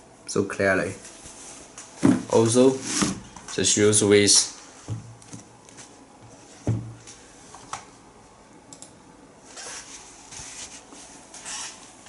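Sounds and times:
click: 8.7 - 8.9.

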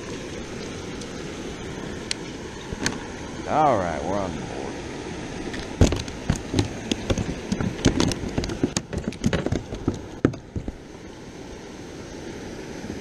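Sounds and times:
fish flopping and slapping: 5.4 - 10.8.

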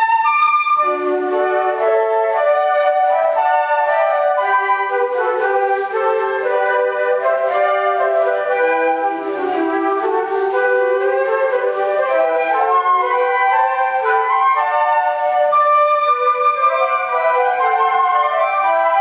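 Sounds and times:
flute ensemble playing: 0.0 - 19.0.

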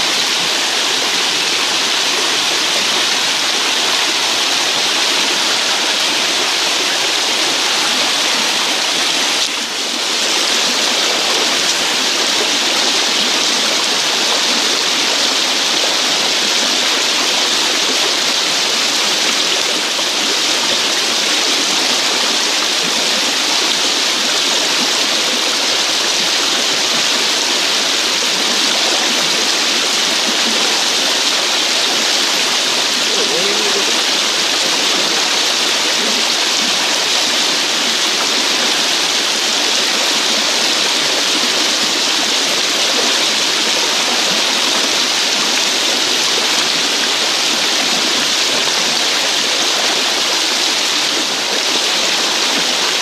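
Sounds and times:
river rushing over rocks: 0.0 - 53.0.

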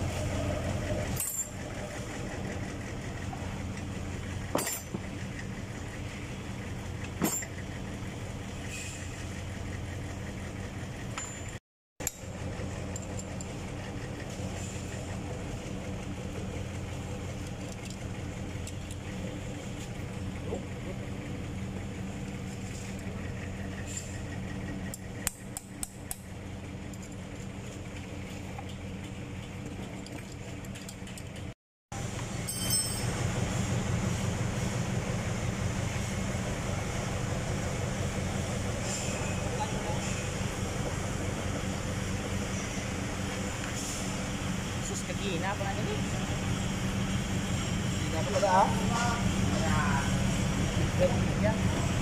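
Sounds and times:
low mechanical hum: 0.0 - 52.0
truck engine idling: 0.0 - 52.0
metal clanks on steel table: 4.5 - 5.0
wrench clinking on metal bolt: 32.4 - 33.1.

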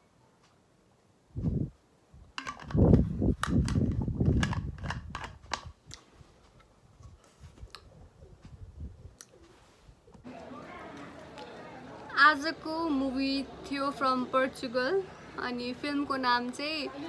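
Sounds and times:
plastic bottle cap crackling: 2.4 - 6.0.

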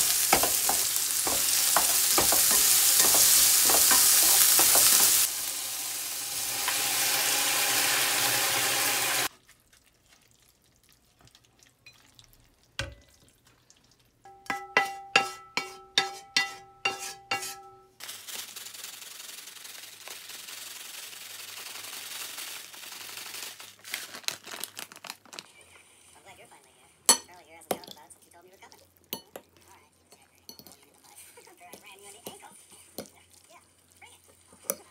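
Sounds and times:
frying pan sizzling: 0.0 - 9.3, 14.1 - 23.8
water boiling in a pot: 0.0 - 14.3.

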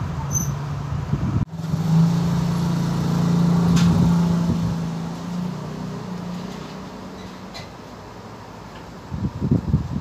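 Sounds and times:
low motor hum: 0.8 - 7.2.

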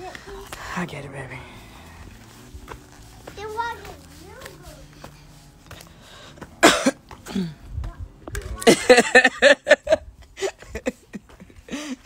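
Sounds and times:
person laughing: 8.6 - 12.0.

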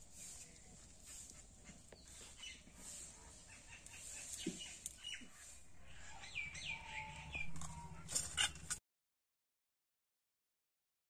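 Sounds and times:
small birds chirping: 0.1 - 8.5.

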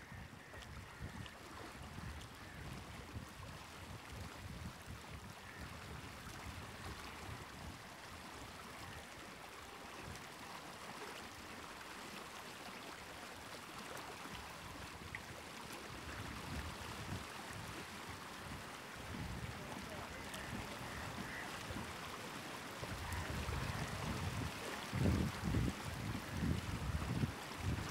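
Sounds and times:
gently moving water: 6.2 - 26.4.

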